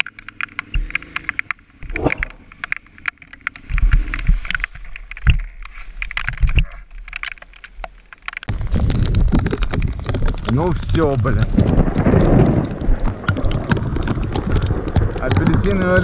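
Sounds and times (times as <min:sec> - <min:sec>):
raindrops clicking on microphone: 0:00.0 - 0:16.0
low thuds: 0:08.5 - 0:16.0.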